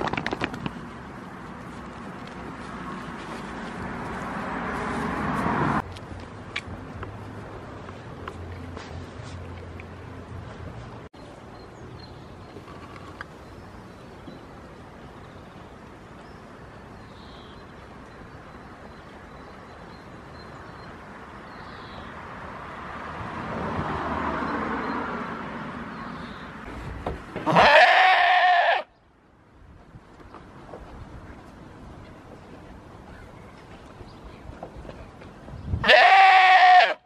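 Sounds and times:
outdoor background noise: 0:00.0 - 0:37.0
goat bleating: 0:27.4 - 0:28.9, 0:35.8 - 0:37.0.

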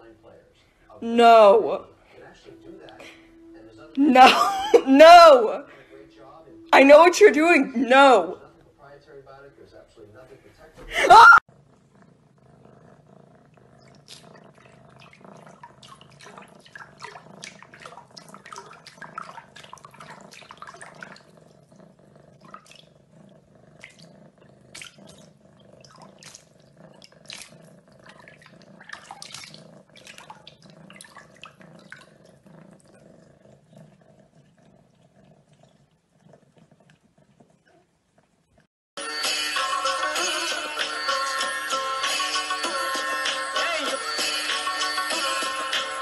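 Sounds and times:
cat splashing water in sink: 0:14.0 - 0:21.4, 0:22.4 - 0:23.0, 0:24.7 - 0:32.4.

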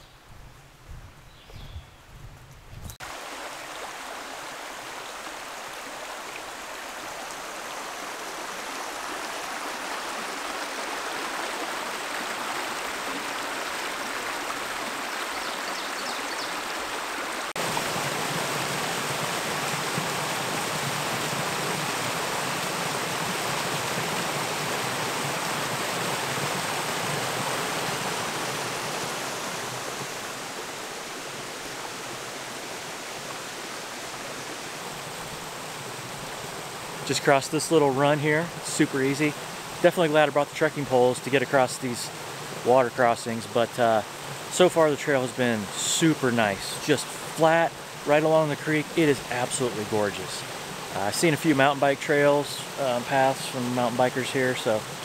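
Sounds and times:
creek flowing over rocks: 0:03.0 - 0:55.0
water spilling down cascade: 0:16.5 - 0:55.0.

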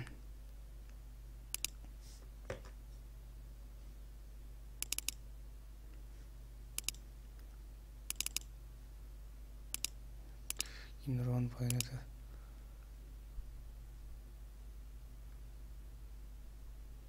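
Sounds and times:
steady low hum: 0:00.0 - 0:17.0
mouse button clicks: 0:04.8 - 0:05.2.

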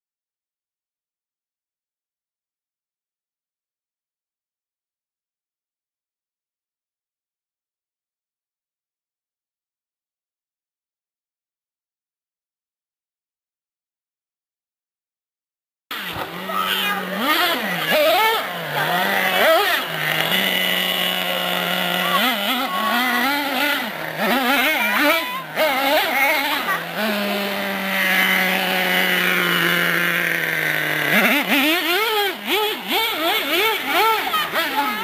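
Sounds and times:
small nitro engine revving: 0:15.9 - 0:35.0.

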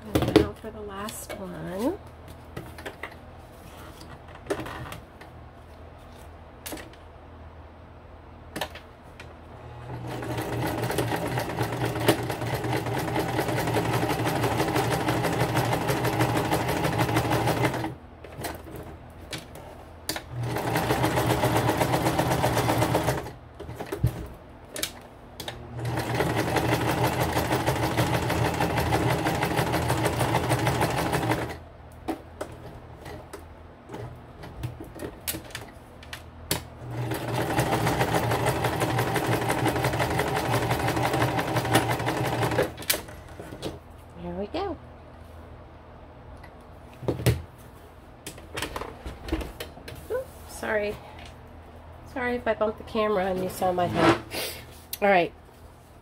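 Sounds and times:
sewing machine stitching: 0:09.7 - 0:18.7, 0:20.2 - 0:24.0, 0:25.4 - 0:31.6, 0:36.8 - 0:43.2.

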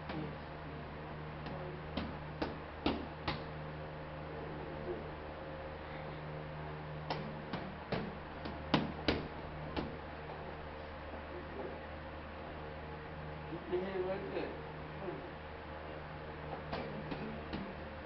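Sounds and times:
steady low hum: 0:00.0 - 0:18.0
boxing gloves smacking palms: 0:01.5 - 0:03.5, 0:07.1 - 0:10.0.

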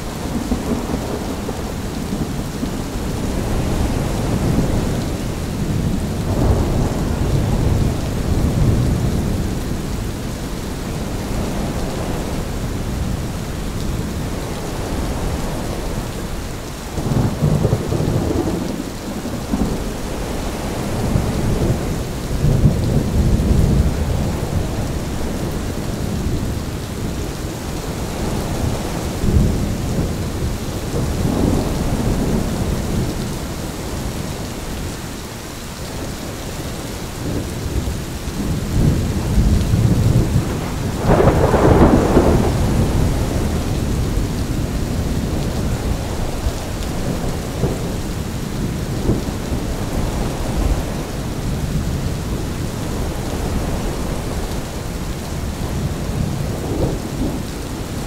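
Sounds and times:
thunder rumbling: 0:00.0 - 0:34.9, 0:35.9 - 0:58.0
gusts of wind: 0:00.0 - 0:58.0
steady rain: 0:00.0 - 0:58.0.

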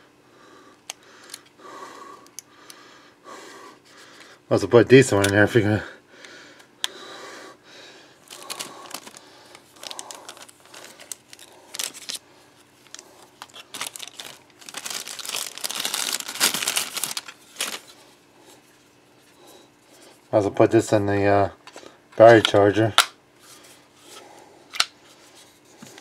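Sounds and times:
plastic packaging crinkling: 0:08.2 - 0:18.1.

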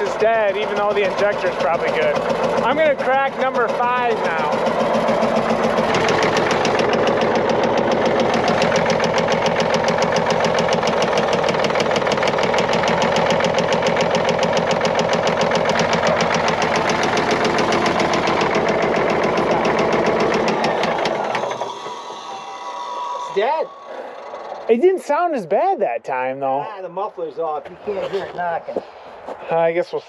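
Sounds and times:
engine knock: 0:00.0 - 0:22.3, 0:23.7 - 0:24.8
diesel engine running unmuffled: 0:00.0 - 0:24.8.

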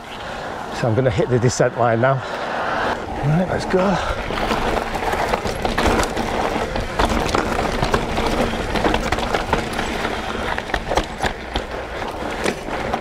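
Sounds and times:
bike rattling over bumps: 0:03.0 - 0:13.0
tyres crunching over gravel: 0:03.0 - 0:13.0.

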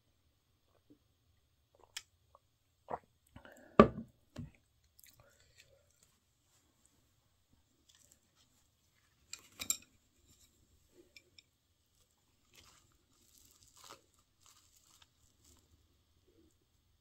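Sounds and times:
leaf rustling: 0:12.6 - 0:15.7.

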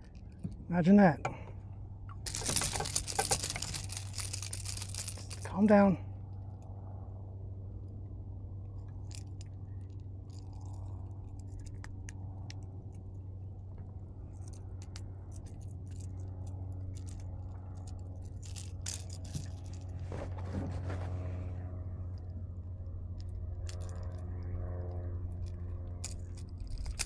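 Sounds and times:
steady low hum: 0:00.0 - 0:27.0
scraping rustle: 0:02.3 - 0:05.6, 0:18.2 - 0:21.6.

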